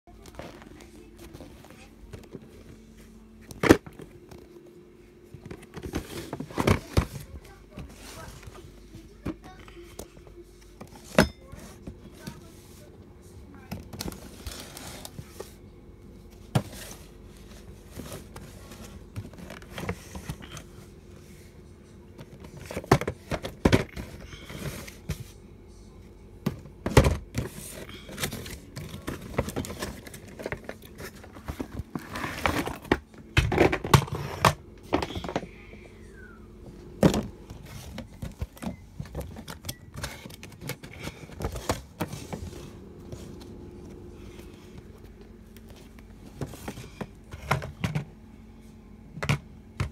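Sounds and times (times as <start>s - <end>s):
cardboard box and packaging handled: 5.3s - 9.6s, 26.4s - 34.0s, 36.8s - 47.9s.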